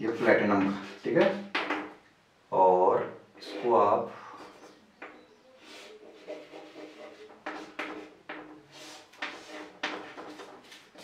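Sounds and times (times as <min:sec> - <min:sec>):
chalk scratching on blackboard: 0:00.2 - 0:01.4, 0:05.6 - 0:11.0.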